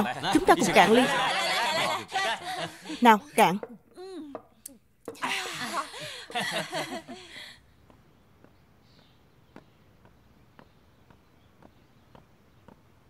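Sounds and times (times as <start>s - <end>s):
footsteps of hard shoes on pavement: 7.8s - 13.0s.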